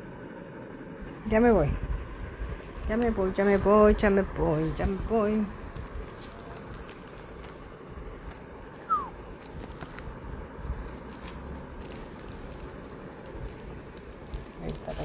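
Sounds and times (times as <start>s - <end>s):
plastic sleeves crinkling: 4.5s - 15.0s.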